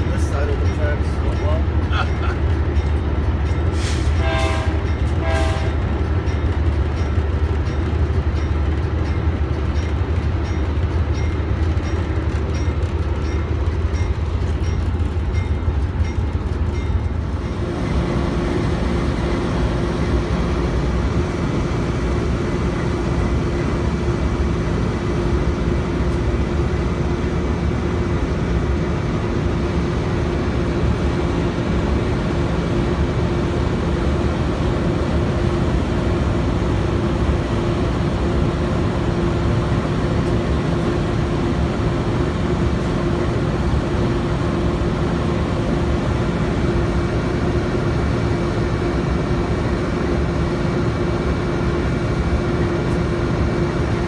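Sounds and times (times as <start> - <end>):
diesel locomotive engine drone: 0.0 - 54.0.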